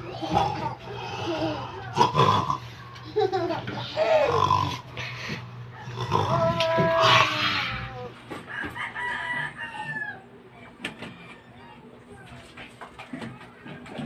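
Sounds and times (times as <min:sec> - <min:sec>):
rooster crowing: 0:08.3 - 0:10.4.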